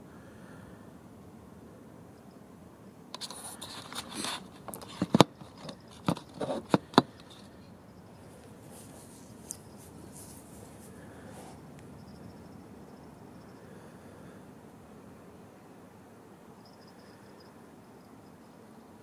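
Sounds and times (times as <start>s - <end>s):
microphone handling rustling: 3.2s - 7.5s, 8.6s - 11.6s
sharp clicks and knocks: 3.2s - 7.5s.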